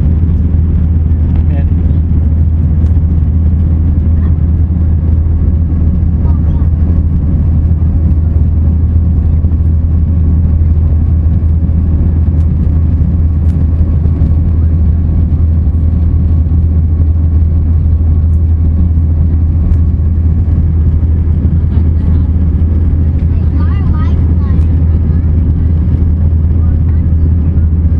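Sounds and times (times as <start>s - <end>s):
jet airliner cabin rumble: 0.0s - 27.9s.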